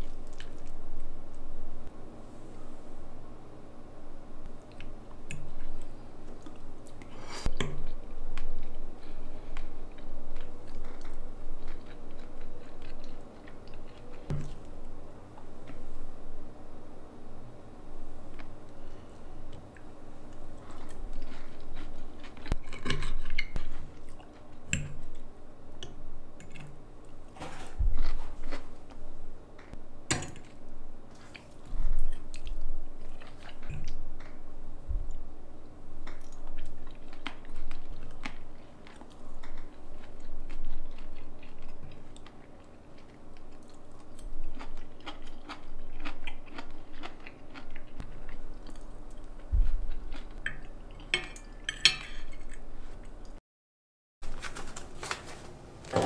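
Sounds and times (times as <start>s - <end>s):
faint steady hum: 0.0s - 53.4s
crisp food crunching: 36.1s - 51.1s.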